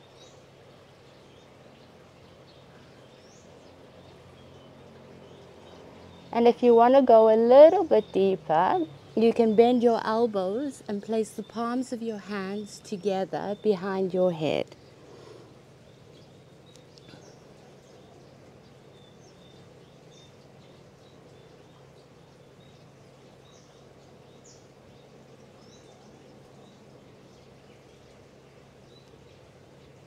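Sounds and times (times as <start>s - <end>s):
faint birds chirping: 0.0s - 30.0s
low background hum: 0.0s - 30.0s.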